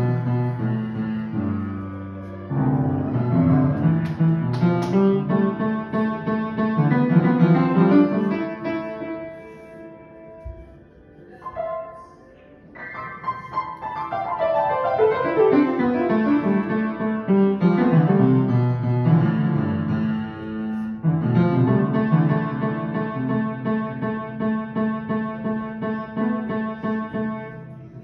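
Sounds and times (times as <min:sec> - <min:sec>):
child playing upright piano: 0:00.0 - 0:28.0.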